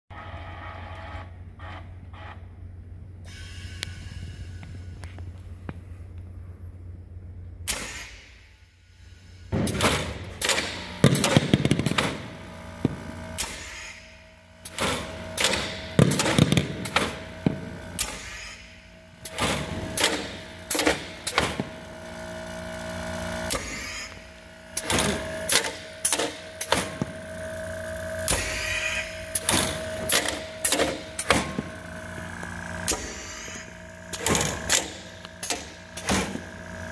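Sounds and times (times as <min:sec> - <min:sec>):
steady mechanical hum: 0:00.1 - 0:36.9
mechanical clicks and clacks: 0:09.6 - 0:13.8, 0:14.6 - 0:18.5, 0:19.2 - 0:21.9, 0:23.4 - 0:27.2, 0:28.2 - 0:31.8, 0:32.4 - 0:36.9.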